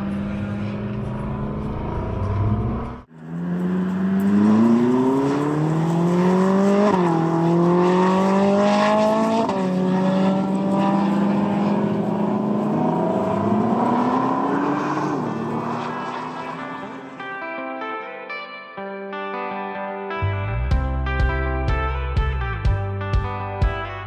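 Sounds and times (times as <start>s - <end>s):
sports car engine accelerating: 0.0s - 17.2s.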